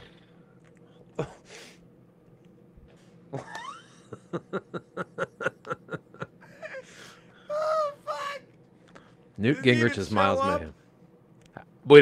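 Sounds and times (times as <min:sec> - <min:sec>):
men laughing hard: 0:03.3 - 0:08.0.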